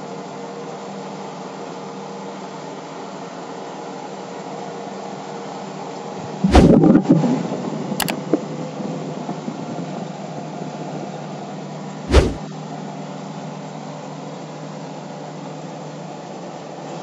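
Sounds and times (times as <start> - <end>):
loud thump: 6.4 - 7.0, 12.1 - 12.4
sharp click: 6.5 - 6.8, 12.1 - 12.4.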